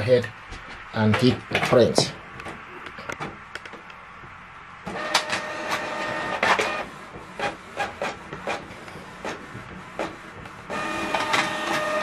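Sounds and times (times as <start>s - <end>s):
printer motors whirring: 0.5s - 12.0s
printer mechanical clicks: 4.9s - 12.0s.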